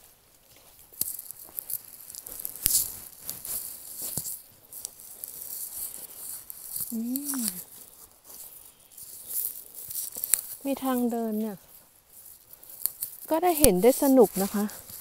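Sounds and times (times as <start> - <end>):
footsteps through tall grass: 0.0 - 15.0
leaves and stems rustling: 0.0 - 15.0
twig snapping: 6.4 - 7.7
person humming: 6.9 - 7.7.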